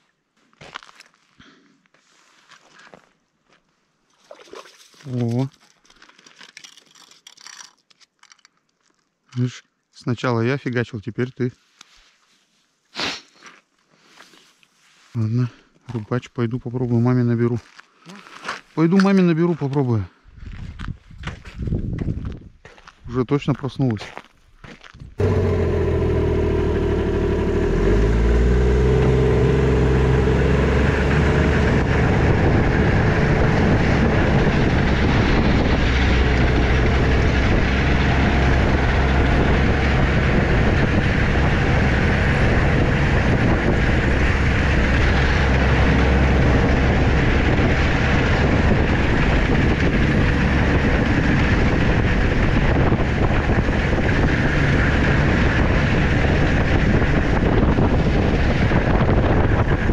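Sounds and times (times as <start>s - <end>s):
vehicle engine running: 25.2s - 59.9s.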